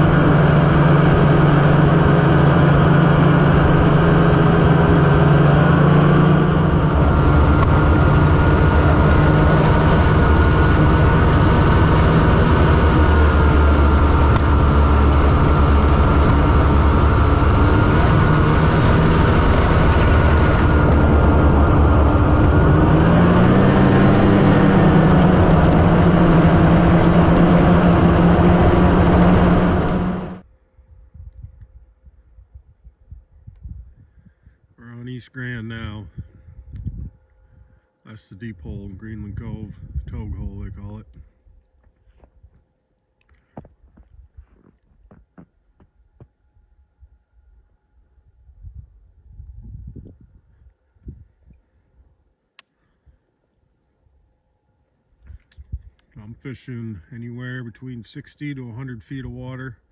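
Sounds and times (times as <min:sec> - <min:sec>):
snowmobile engine running: 0:00.0 - 0:30.4.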